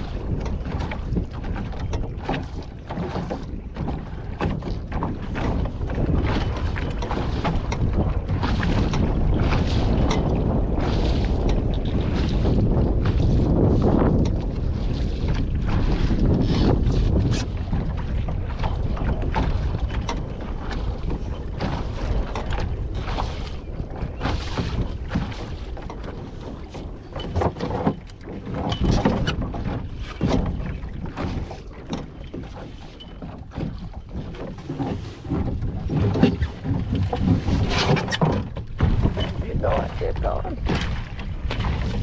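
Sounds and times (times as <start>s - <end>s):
wind rumbling on microphone: 0.0s - 42.0s
water wash: 35.6s - 42.0s.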